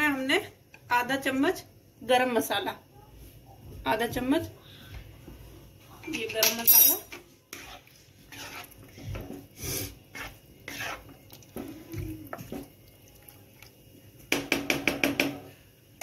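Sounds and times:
wooden spatula scraping pan: 0:07.1 - 0:12.7
sharp knocks on pan: 0:14.3 - 0:15.4.

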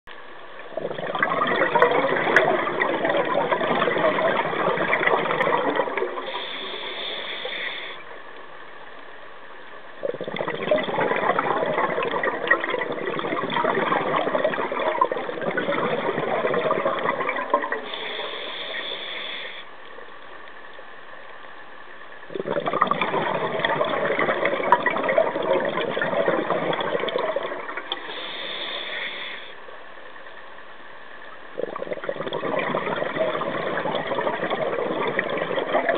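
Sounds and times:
exhaled bubbles rushing: 0:00.6 - 0:07.0, 0:10.0 - 0:18.8, 0:22.3 - 0:28.3, 0:31.6 - 0:35.9
diver breathing through regulator: 0:06.3 - 0:08.1, 0:17.9 - 0:19.7, 0:28.0 - 0:29.6.

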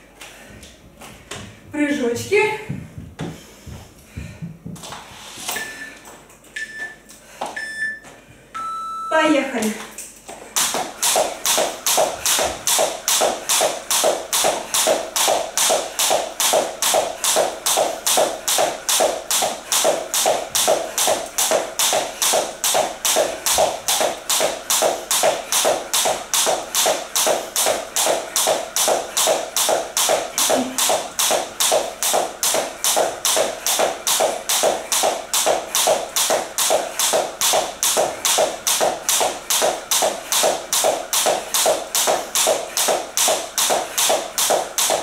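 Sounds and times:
jump rope slapping wooden floor: 0:09.8 - 0:45.0
sneakers landing: 0:10.3 - 0:45.0.

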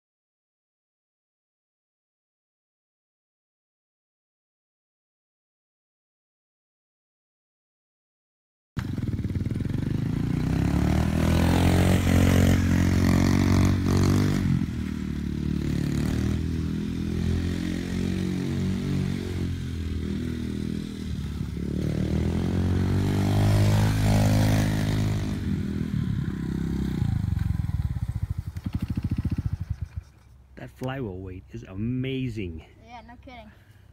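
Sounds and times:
small motorcycle engine revving: 0:08.8 - 0:30.4.

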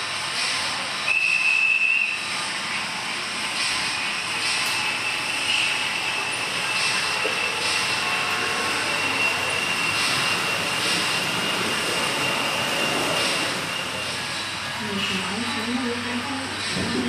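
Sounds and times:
high whine: 0:00.0 - 0:17.0
model trains whirring on track: 0:00.0 - 0:17.0.

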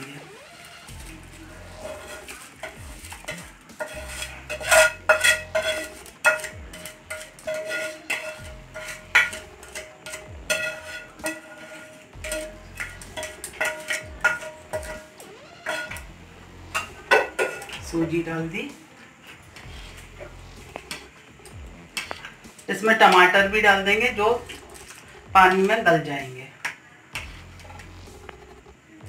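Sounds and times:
pan ringing: 0:00.0 - 0:18.7
spoon knocking metal pan: 0:01.8 - 0:16.1, 0:16.7 - 0:18.8, 0:19.6 - 0:26.0.

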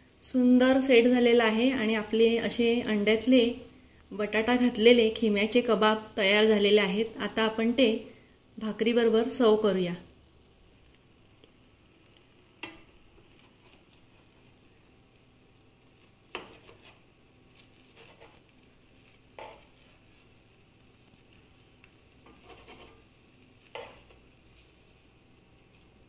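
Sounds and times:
spoon scraping frying pan: 0:12.6 - 0:14.5, 0:16.3 - 0:20.2, 0:22.2 - 0:24.7.

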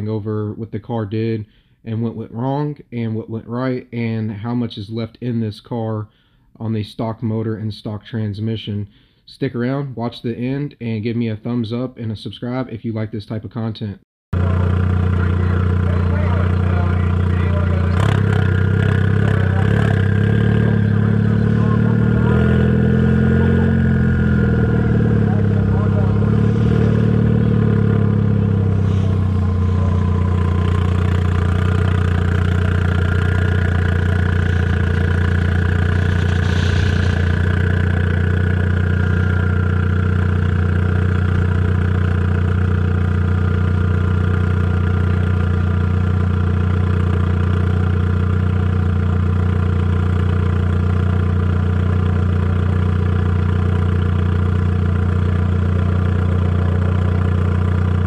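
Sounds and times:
car engine running steadily: 0:14.3 - 0:58.0.

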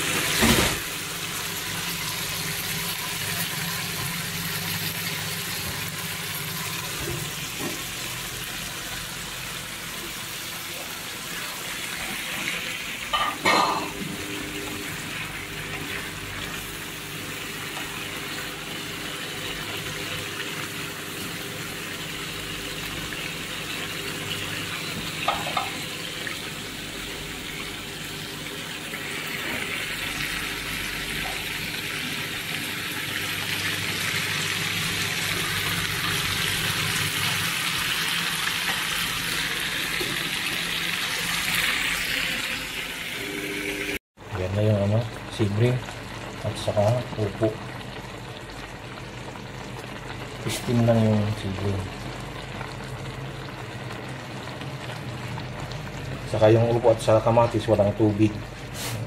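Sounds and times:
sauce sizzling in frying pan: 0:14.8 - 0:43.1, 0:45.4 - 0:56.3.

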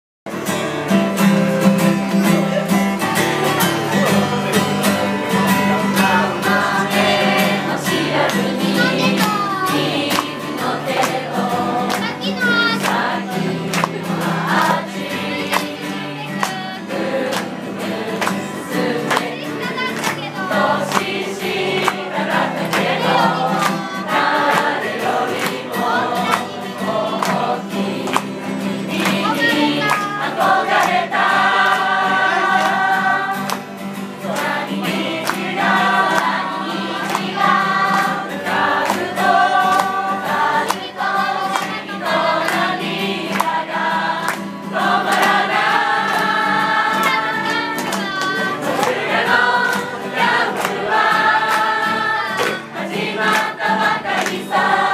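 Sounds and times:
strummed acoustic guitar: 0:00.3 - 0:54.9
group singing: 0:00.5 - 0:54.9.

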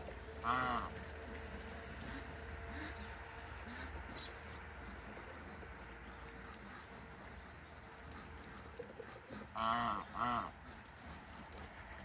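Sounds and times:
goose honking: 0:00.3 - 0:01.1, 0:01.8 - 0:04.3, 0:09.0 - 0:11.6.

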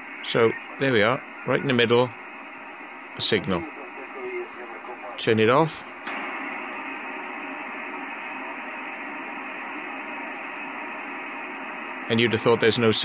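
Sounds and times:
radio static hiss: 0:00.0 - 0:13.0.

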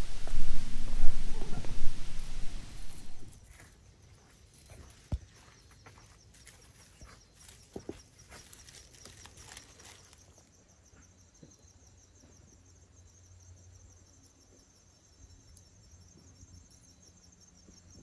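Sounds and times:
dry leaf litter rustling: 0:00.0 - 0:03.4, 0:08.4 - 0:10.4
insects trilling: 0:00.0 - 0:18.0.

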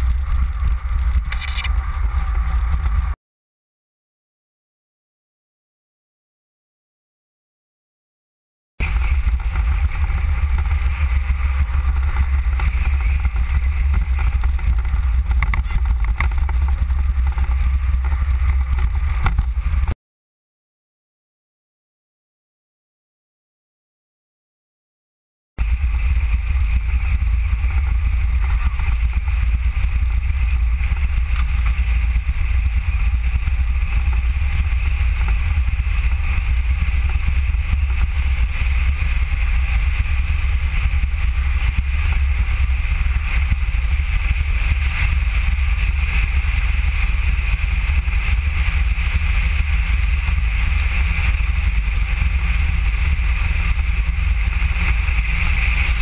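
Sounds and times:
road rumble: 0:00.0 - 0:03.2, 0:08.8 - 0:20.0, 0:25.6 - 0:56.0
wind rush on microphone: 0:00.0 - 0:03.2, 0:08.8 - 0:20.0, 0:25.6 - 0:56.0.

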